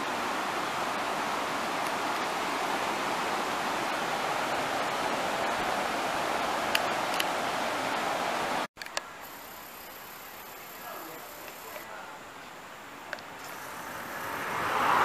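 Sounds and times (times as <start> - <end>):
water rushing over rocks: 0.0 - 8.7
faint high whine: 8.9 - 14.6.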